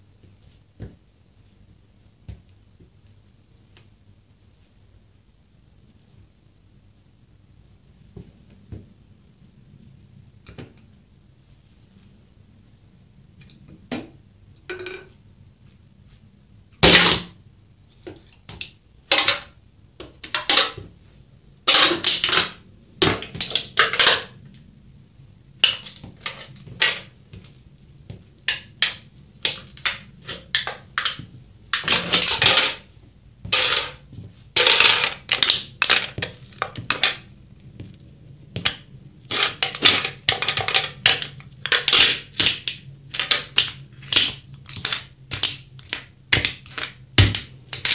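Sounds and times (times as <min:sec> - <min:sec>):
metallic can crackles: 0:28.5 - 0:32.9, 0:33.5 - 0:34.0, 0:34.6 - 0:37.2, 0:38.7 - 0:47.9.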